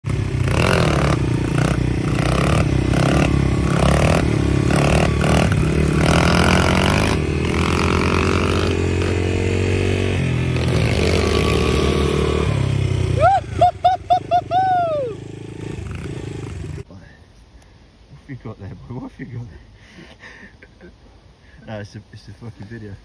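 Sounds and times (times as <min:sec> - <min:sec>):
dirt bike engine revving: 0:00.0 - 0:16.9.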